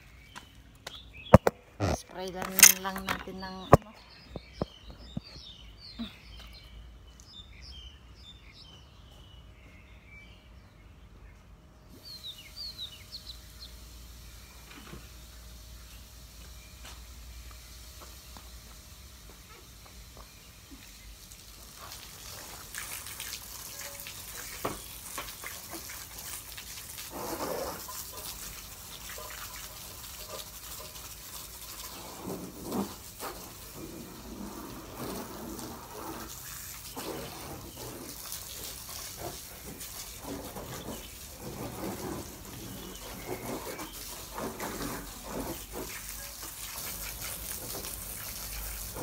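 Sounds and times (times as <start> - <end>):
hose water spraying on car: 12.0 - 49.0.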